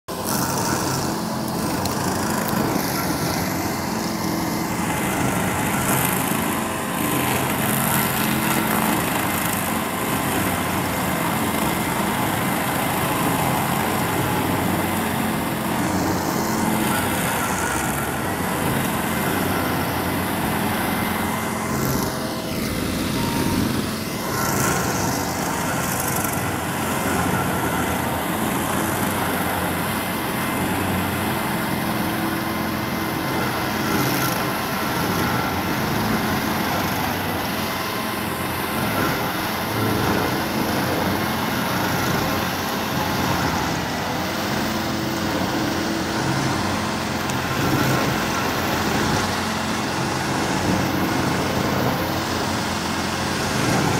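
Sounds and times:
stump grinder grinding: 0:00.1 - 0:53.9.

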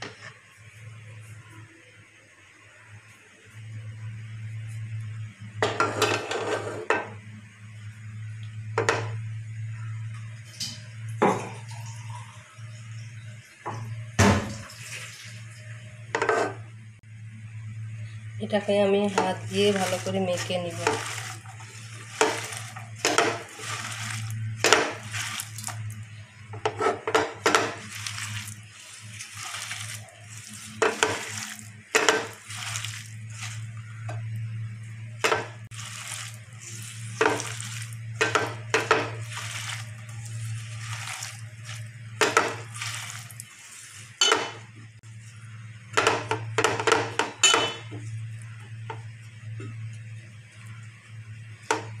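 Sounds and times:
steady low hum: 0:00.0 - 0:52.0
hand mixing food in a metal pan: 0:18.9 - 0:34.1, 0:35.2 - 0:44.7.

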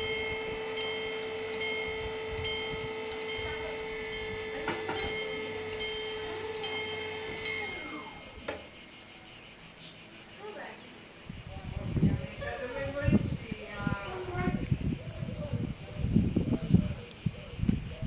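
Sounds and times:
level crossing bells ringing: 0:00.0 - 0:08.3.

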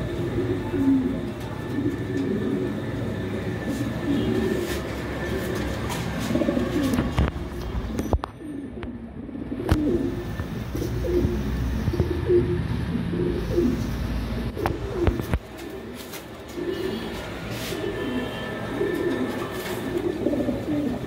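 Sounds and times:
pigeons cooing: 0:00.0 - 0:21.0.

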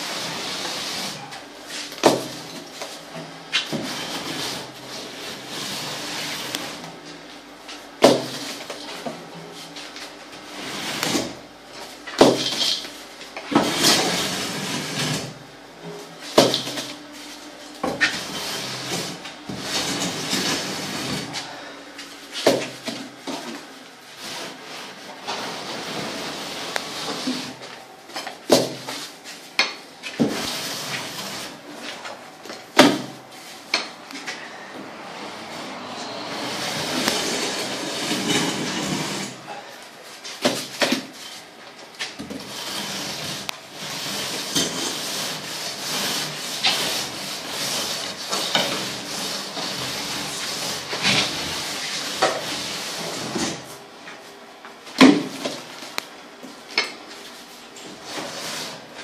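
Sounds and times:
straightedge scraping cement: 0:00.0 - 0:07.0, 0:09.6 - 0:11.4, 0:12.0 - 0:17.1, 0:17.8 - 0:21.7, 0:35.4 - 0:39.6, 0:40.3 - 0:53.8, 0:57.8 - 0:59.0.

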